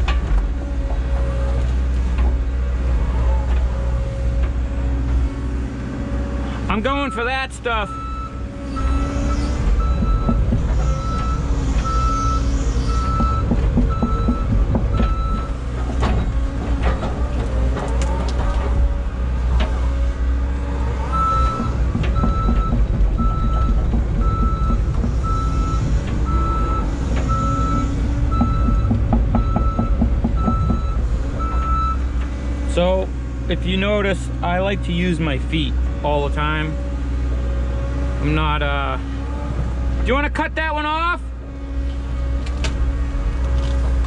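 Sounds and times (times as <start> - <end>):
knocks and clunks: 0.0 - 2.5, 9.5 - 20.0, 21.1 - 32.7
excavator engine running: 0.0 - 44.0
travel alarm beeping: 7.9 - 15.6, 21.1 - 32.0.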